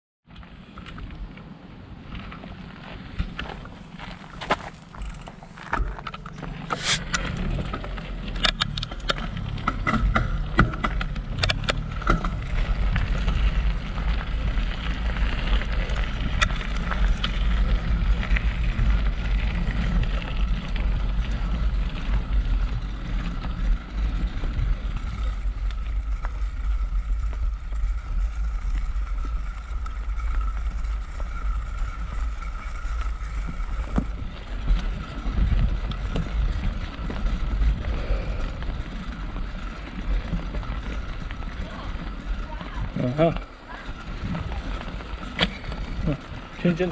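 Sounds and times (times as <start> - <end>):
bike crunching and rattling: 0.3 - 46.9
tyres rumbling: 1.0 - 46.9
wind on microphone: 30.4 - 43.0.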